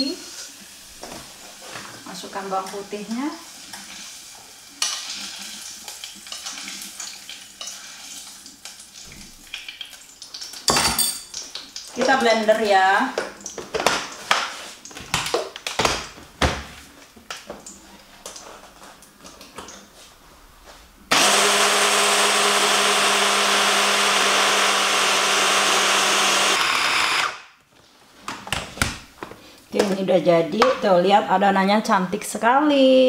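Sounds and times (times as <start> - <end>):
hand blender grinding: 21.1 - 27.5.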